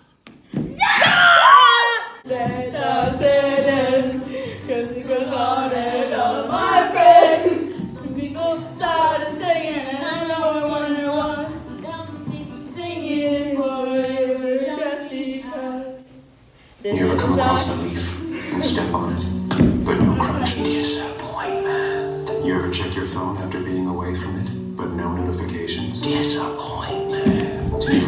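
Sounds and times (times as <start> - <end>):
low musical accompaniment: 2.3 - 15.5, 16.8 - 28.0
person singing: 16.8 - 24.2, 24.8 - 28.0.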